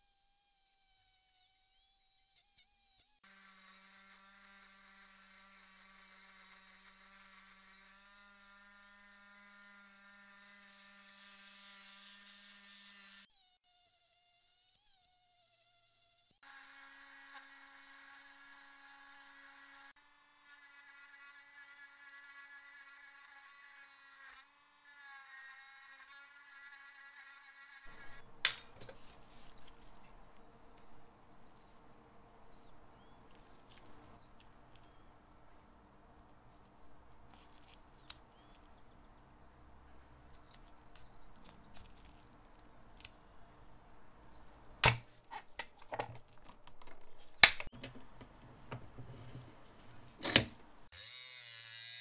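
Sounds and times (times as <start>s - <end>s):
electric power tool whine: 50.9s - 52.0s.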